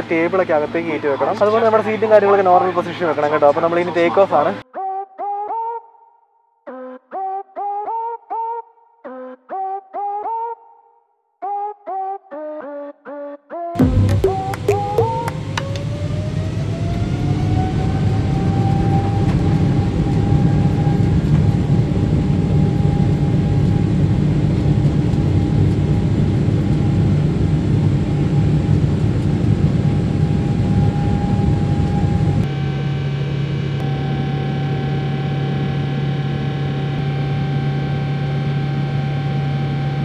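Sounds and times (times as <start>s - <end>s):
jet engine rumble and whine: 0.0s - 4.6s, 14.2s - 40.0s.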